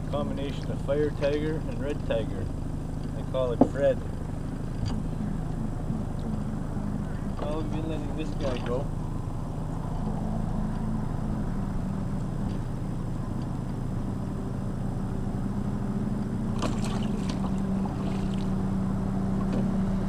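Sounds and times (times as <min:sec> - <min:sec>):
outboard motor idling: 0:00.0 - 0:20.0
water splashes: 0:16.5 - 0:18.7.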